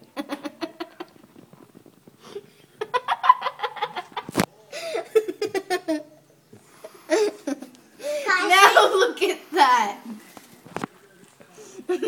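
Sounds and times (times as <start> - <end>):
giggling laughter: 2.8 - 6.2.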